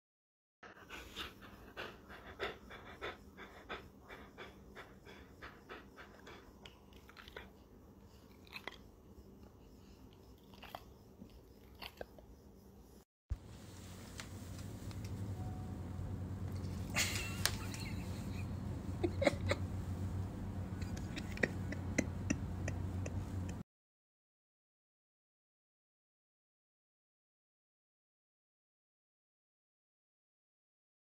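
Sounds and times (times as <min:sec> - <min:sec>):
dog chewing with wet clicks: 0:06.6 - 0:07.6, 0:08.2 - 0:08.9.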